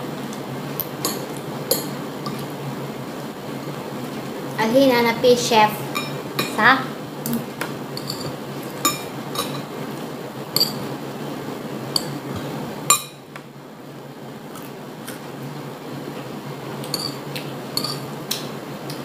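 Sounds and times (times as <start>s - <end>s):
steady low hum: 0.0s - 19.0s
spoon clinking on ceramic plate: 8.0s - 9.7s, 10.6s - 10.8s, 16.9s - 17.2s, 17.8s - 18.0s.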